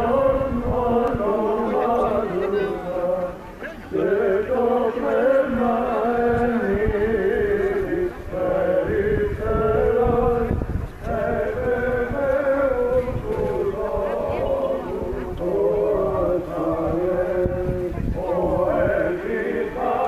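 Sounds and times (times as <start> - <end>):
voices chanting slow melody: 0.0 - 20.0.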